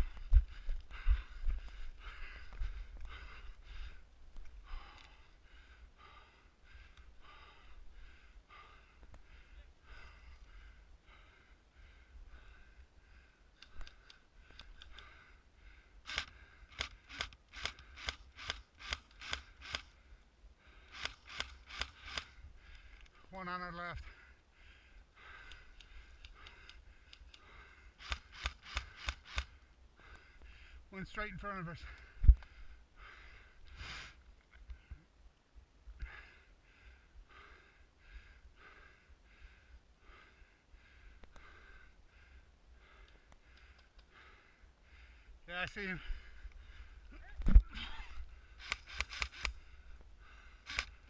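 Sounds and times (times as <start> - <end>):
heavy breathing: 0.0 - 18.1, 24.0 - 35.1, 36.0 - 51.0
faint sharp clicks: 13.6 - 15.2, 25.4 - 29.5, 41.2 - 41.5, 43.0 - 44.2.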